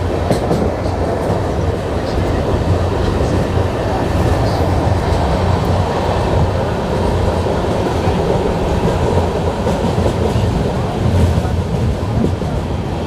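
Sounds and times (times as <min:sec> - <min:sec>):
clickety-clack of rail joints: 0:00.0 - 0:13.0
train wheels rumbling on rails: 0:00.0 - 0:13.0.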